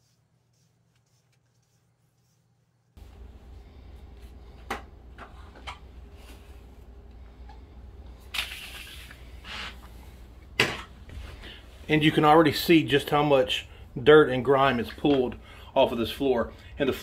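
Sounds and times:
brush swishing across floor: 0.0 - 4.0.

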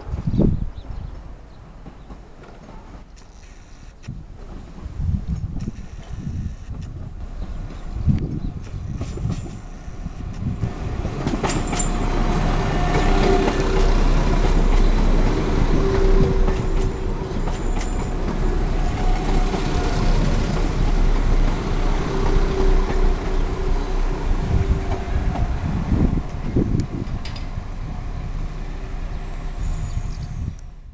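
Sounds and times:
train engine and wheel noise: 0.0 - 30.9
high wheel squeaks: 2.8 - 4.0, 5.6 - 27.6.

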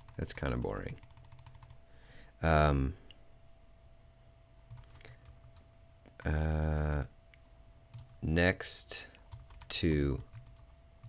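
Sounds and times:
keyboard typing: 0.0 - 1.8, 4.6 - 7.1, 7.9 - 8.2, 9.2 - 11.0.

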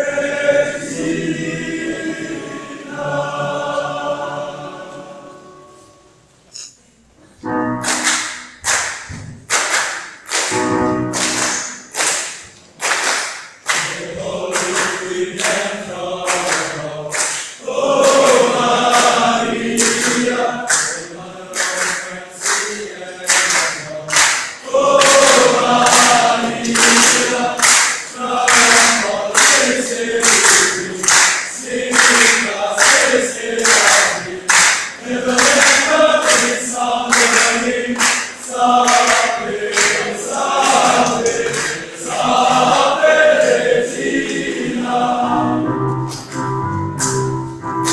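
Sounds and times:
male choir singing: 0.0 - 6.0, 13.8 - 45.8
sharp rhythmic strokes: 13.2 - 45.2.

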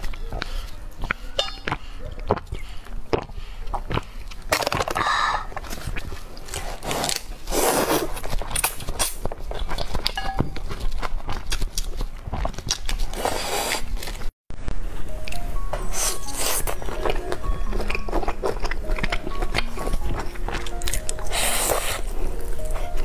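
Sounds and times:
wet chewing: 0.0 - 14.3, 16.0 - 23.0
person slurping noodles: 6.6 - 8.2, 13.0 - 14.0, 21.2 - 22.6.

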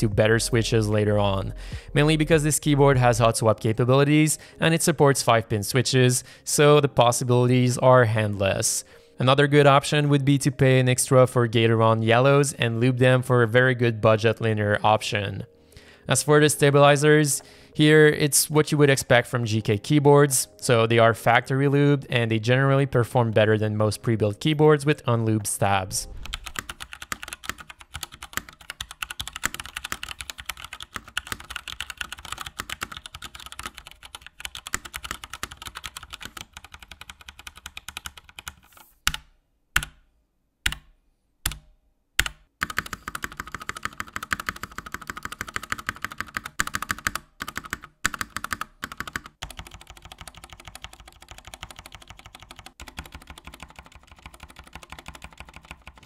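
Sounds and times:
mechanical keyboard typing: 26.2 - 39.2, 42.2 - 56.0.

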